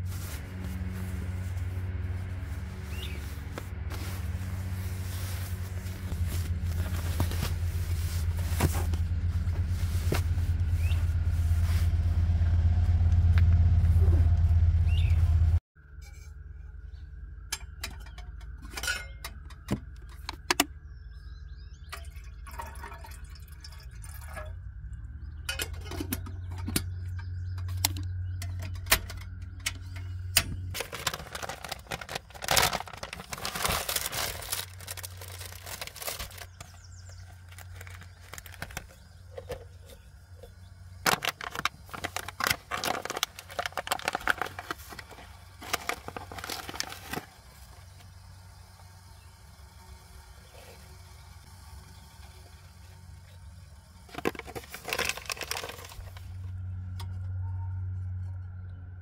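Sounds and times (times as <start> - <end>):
coffee packet crinkling: 30.7 - 39.6, 41.0 - 47.9, 54.1 - 56.2.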